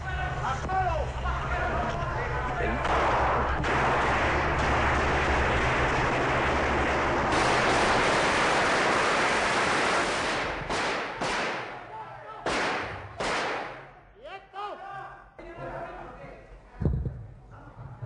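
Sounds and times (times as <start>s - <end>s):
automatic gunfire echoing: 7.2s - 11.8s.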